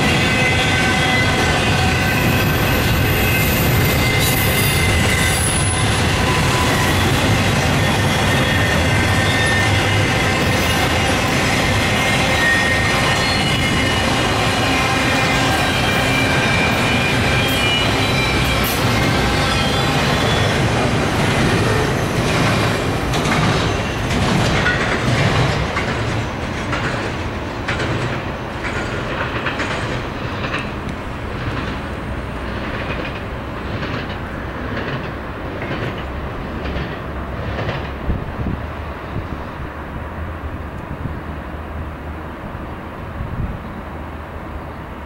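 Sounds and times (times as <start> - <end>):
low train rumble: 0.0 - 45.0
train wheels clicking over rail joints: 15.3 - 38.6.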